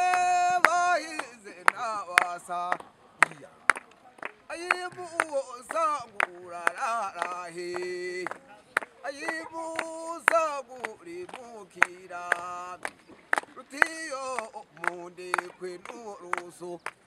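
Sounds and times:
man singing: 0.0 - 3.6, 4.5 - 17.0.

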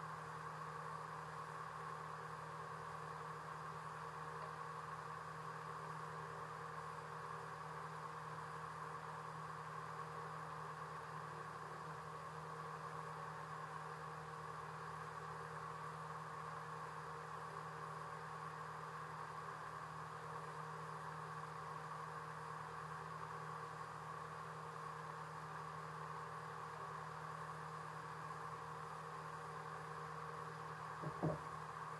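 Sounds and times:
boat engine hum: 31.0 - 31.5.

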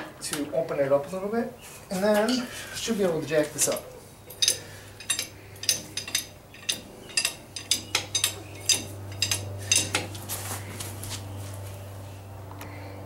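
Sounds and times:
metallic clinks and taps: 3.7 - 10.2.

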